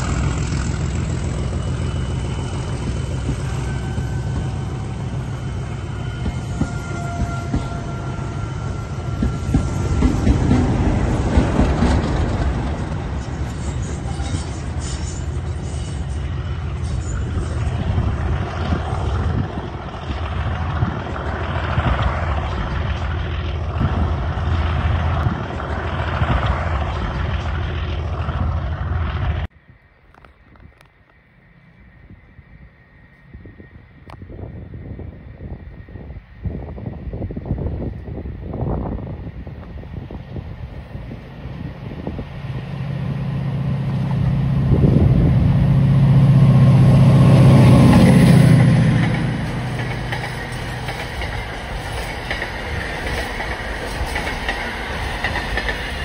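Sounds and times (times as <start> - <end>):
diesel locomotive engine thrashing: 0.0 - 29.5.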